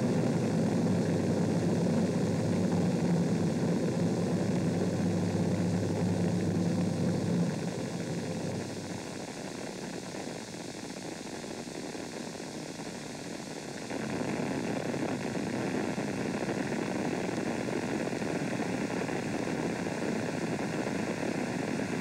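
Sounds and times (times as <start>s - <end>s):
rocket exhaust roar: 0.0s - 10.0s.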